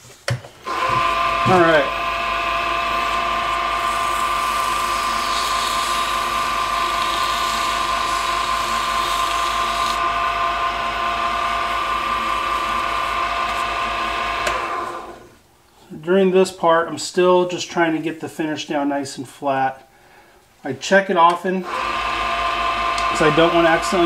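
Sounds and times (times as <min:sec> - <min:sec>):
wood lathe whining: 0:00.6 - 0:15.4, 0:21.6 - 0:24.0
sandpaper hissing on spinning wood: 0:02.8 - 0:10.0.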